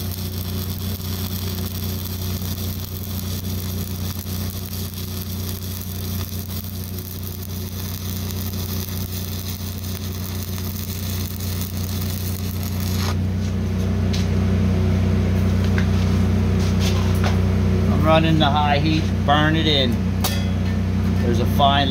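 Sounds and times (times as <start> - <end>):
welding arc crackling and hissing: 0.0 - 13.5
low machine hum: 0.0 - 21.9.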